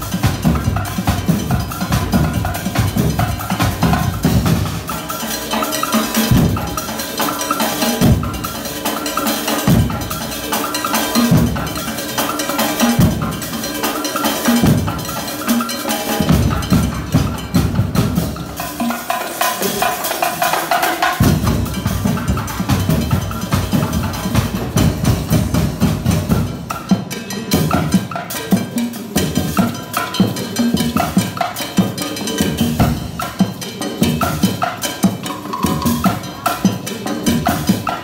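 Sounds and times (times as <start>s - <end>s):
percussion ensemble: 0.0s - 38.0s
fast high ticking pattern: 34.2s - 38.0s.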